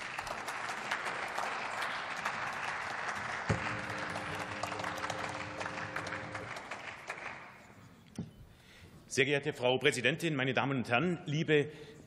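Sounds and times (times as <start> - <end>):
many hands clapping: 0.0 - 7.8.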